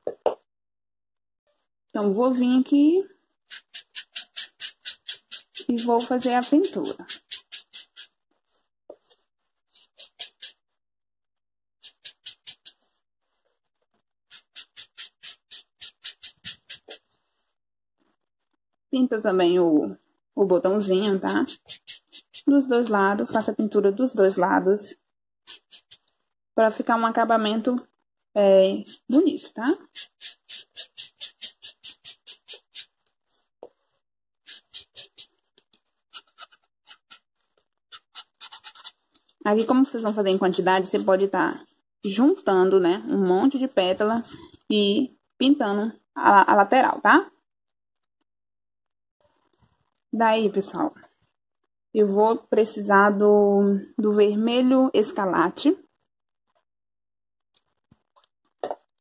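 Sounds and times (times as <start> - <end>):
sponge rubbing on foam: 3.5 - 8.6, 9.7 - 10.6, 11.8 - 13.0, 14.3 - 17.2, 20.7 - 22.6, 25.5 - 26.1, 28.8 - 33.5, 34.4 - 35.4, 36.1 - 37.3, 37.9 - 41.4.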